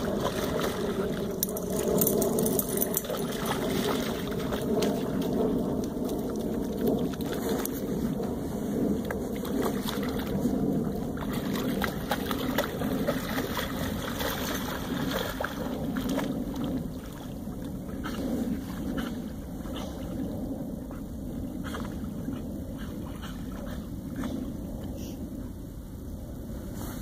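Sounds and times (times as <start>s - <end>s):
water sloshing and splashing: 0.0s - 20.3s
wind rumble on microphone: 0.0s - 27.0s.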